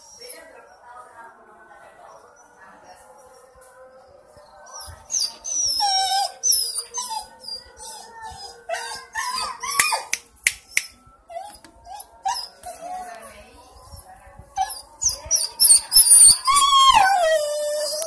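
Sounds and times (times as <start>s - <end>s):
dog whining and howling: 4.7s - 10.2s, 11.3s - 13.2s, 14.6s - 18.0s.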